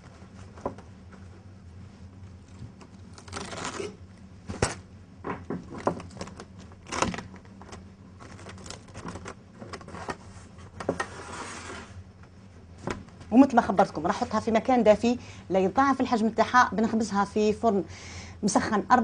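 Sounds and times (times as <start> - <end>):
cling film crinkling: 2.4 - 4.0, 6.0 - 10.1.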